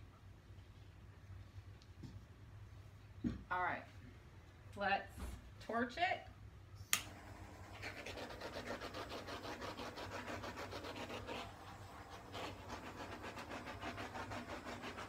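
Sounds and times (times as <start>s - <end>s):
torch flame hissing: 7.1s - 8.5s.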